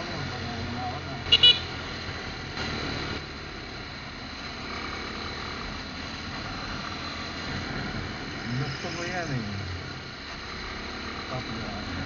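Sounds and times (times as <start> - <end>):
motorcycle engine and road noise: 0.0 - 12.0
short horn beeps: 1.3 - 1.7.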